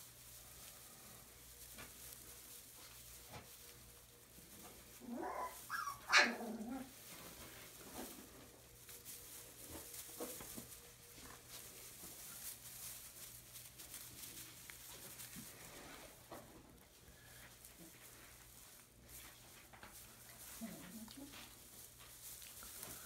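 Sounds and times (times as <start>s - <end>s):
rustling in hay bedding: 0.0s - 23.0s
puppy barking high yips: 5.2s - 6.4s.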